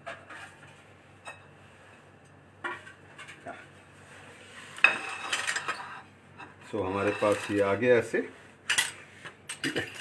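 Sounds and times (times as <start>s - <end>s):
steel bowls and utensils clinking: 4.8s - 7.8s, 8.7s - 10.0s.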